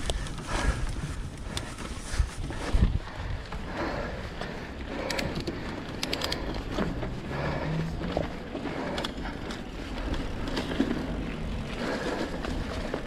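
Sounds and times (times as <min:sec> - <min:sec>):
bike tyre and drivetrain noise: 0:00.0 - 0:13.0
sharp clicks: 0:05.0 - 0:06.7.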